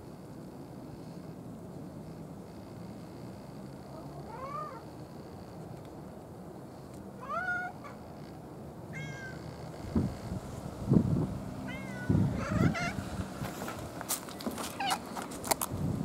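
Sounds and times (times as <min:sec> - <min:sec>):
cat meowing: 0:04.2 - 0:04.9, 0:07.2 - 0:08.0, 0:08.9 - 0:09.5, 0:11.6 - 0:13.0, 0:14.7 - 0:15.0.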